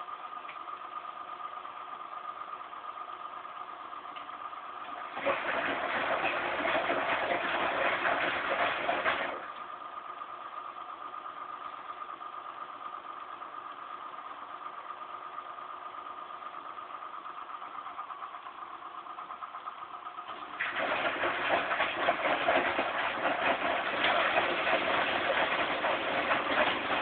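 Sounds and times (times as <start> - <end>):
washing machine hum with whine: 0.0 - 27.0
washing machine rushing water: 4.8 - 9.7, 20.2 - 27.0.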